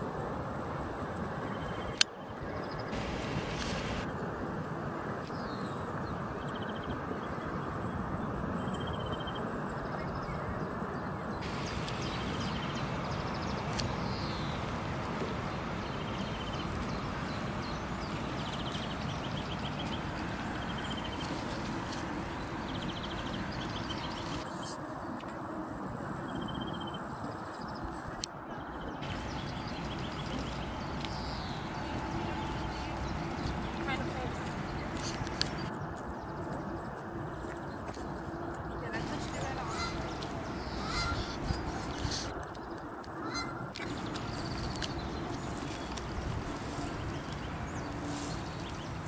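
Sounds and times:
distant city traffic rumble: 0.0s - 10.3s, 11.2s - 49.0s
small birds chirping: 11.4s - 24.7s, 28.6s - 49.0s.

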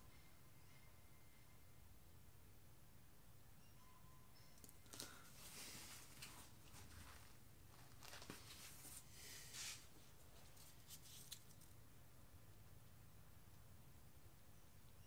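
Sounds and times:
low room hum: 0.0s - 15.0s
gloved hands rustling and scraping: 4.7s - 11.8s.

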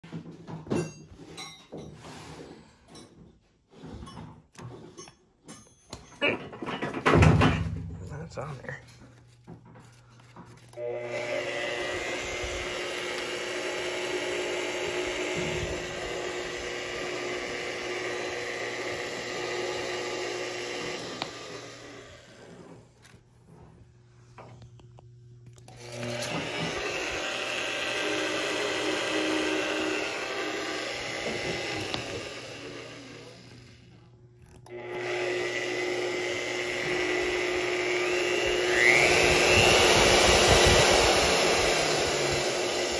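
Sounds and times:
drill press motor whining: 10.6s - 23.7s, 25.5s - 42.9s.

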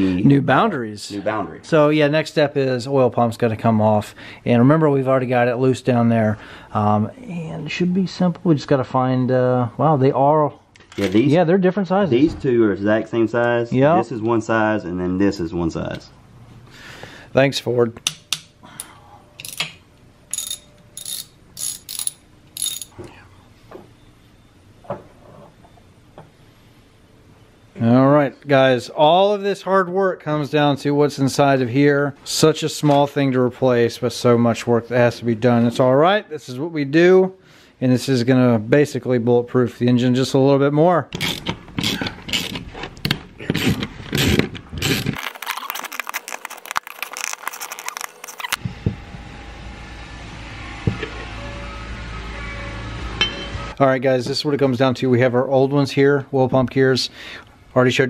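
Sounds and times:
metal bolts clicking and clinking: 19.4s - 23.0s.

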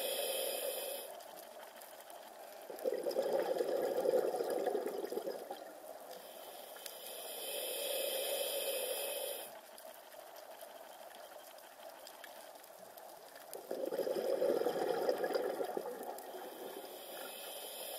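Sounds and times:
soft underwater hiss: 0.0s - 17.9s
bubbling rush of exhaust bubbles: 2.8s - 5.7s, 13.6s - 16.7s.

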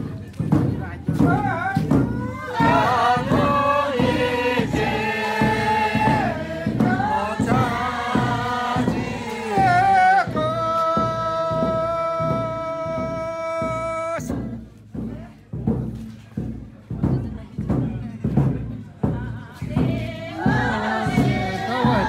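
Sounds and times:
low thudding beat: 0.0s - 22.0s
group singing folk song: 1.2s - 14.8s, 19.0s - 22.0s.

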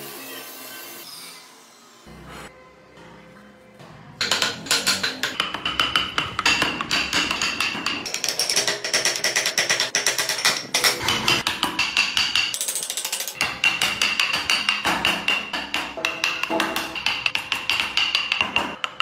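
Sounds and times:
music with fast tapping rhythm: 4.2s - 19.0s.

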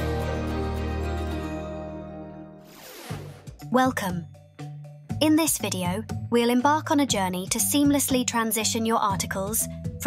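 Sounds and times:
jingle final chord: 0.0s - 2.6s
brief swoosh: 2.6s - 3.5s.

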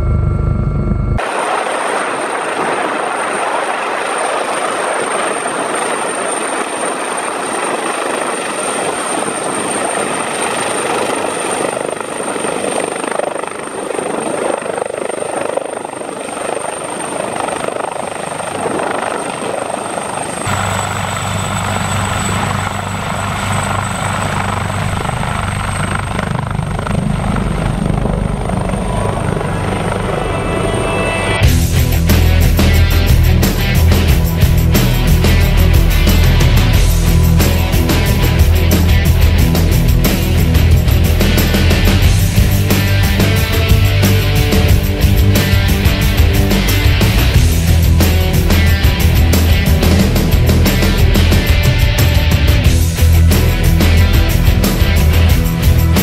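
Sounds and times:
rotor blades throbbing: 0.0s - 1.6s, 9.0s - 56.0s
helicopter turbine whine: 0.0s - 56.0s
rotor wash rushing: 1.2s - 7.2s.

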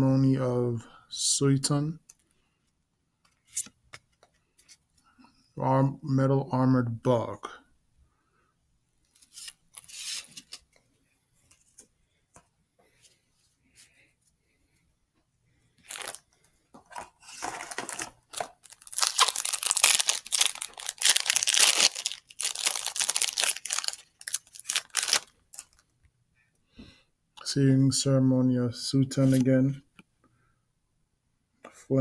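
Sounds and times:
wrapper crinkling and tearing: 15.8s - 16.2s, 16.9s - 25.8s.

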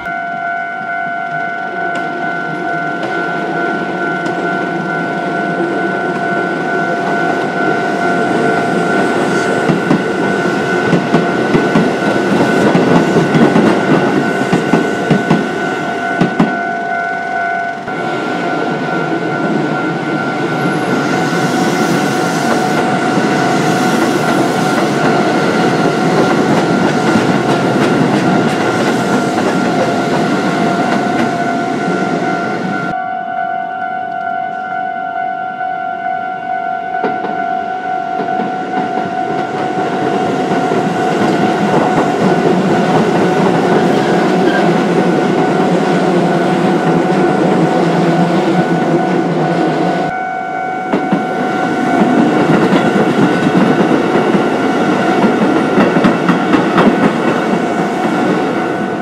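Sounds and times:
electric train rumbling: 0.0s - 59.0s
level-crossing alarm ringing: 0.0s - 59.0s
train wheels clicking on rail joints: 7.0s - 18.0s, 20.4s - 32.0s, 38.2s - 49.0s, 50.9s - 59.0s.

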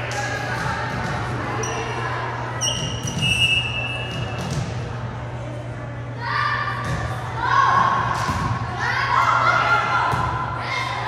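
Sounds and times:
crowd chatter: 0.0s - 11.0s
steady low hum: 0.0s - 11.0s
sneaker squeaks on court: 2.6s - 4.6s.

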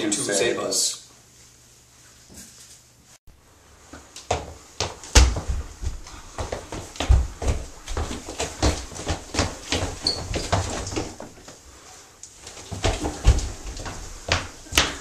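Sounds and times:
shuffling footsteps: 3.8s - 15.0s
thuds on wooden floor: 4.3s - 11.4s.

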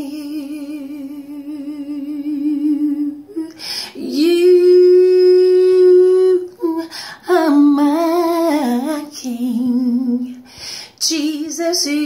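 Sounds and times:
woman breathing: 3.5s - 4.0s, 6.8s - 7.3s, 10.4s - 11.0s.

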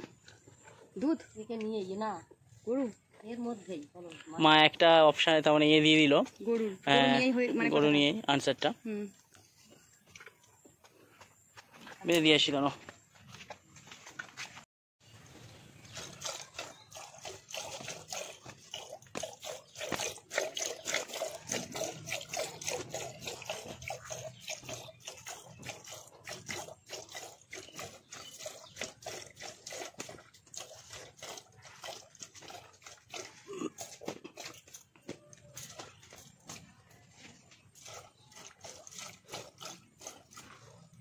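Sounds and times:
milk squirting into a pail: 15.8s - 41.0s.

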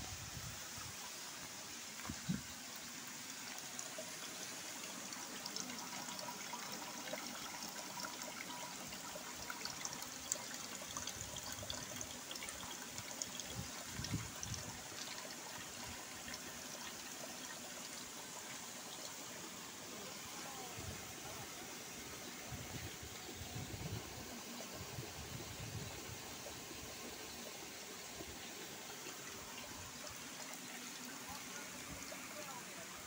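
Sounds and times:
liquid trickling into a bucket: 0.1s - 33.0s
drips and splashes: 0.2s - 33.0s.

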